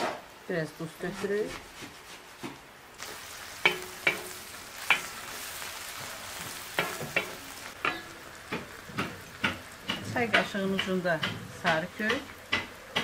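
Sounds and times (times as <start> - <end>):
onions sizzling in oil: 0.4 - 13.0
wooden spatula knocking pan: 3.6 - 5.2, 6.0 - 13.0.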